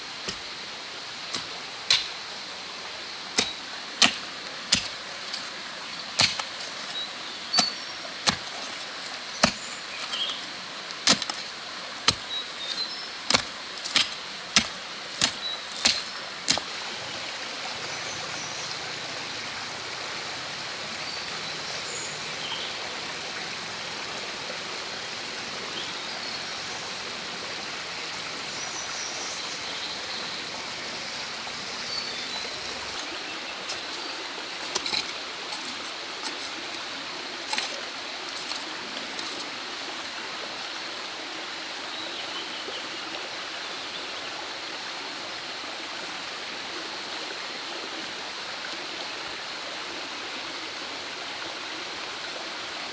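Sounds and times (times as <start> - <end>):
hoe striking soil: 1.3 - 2.2, 3.4 - 16.8, 32.9 - 36.8, 37.4 - 39.5.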